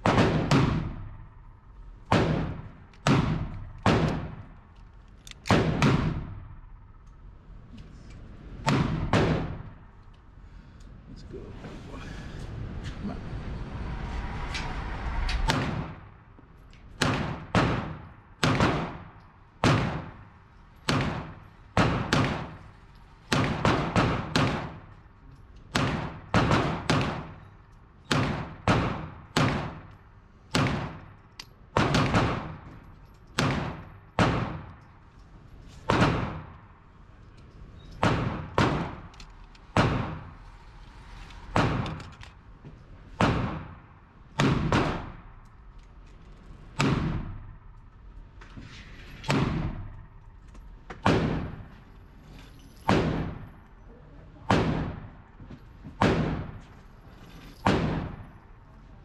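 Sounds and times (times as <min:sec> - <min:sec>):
handgun shots echoing indoors: 0:00.0 - 0:07.2, 0:17.0 - 0:34.9, 0:35.8 - 0:36.8, 0:52.8 - 0:53.5, 0:57.3 - 0:58.6.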